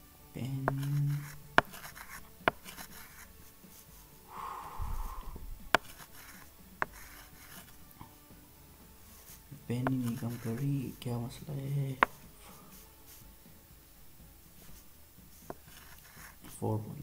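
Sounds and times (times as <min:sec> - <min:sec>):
short scratchy rub: 0:00.6 - 0:04.3, 0:04.9 - 0:07.9, 0:09.0 - 0:13.3, 0:14.6 - 0:16.5
pen tapping clicks: 0:00.7 - 0:03.2, 0:05.7 - 0:07.7, 0:12.0 - 0:12.2.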